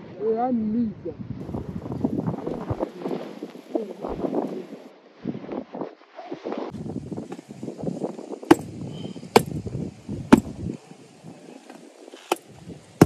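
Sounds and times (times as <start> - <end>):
wind rumble on microphone: 0.0 - 13.0
metal frame knocking into soil: 8.5 - 8.7, 9.4 - 9.6.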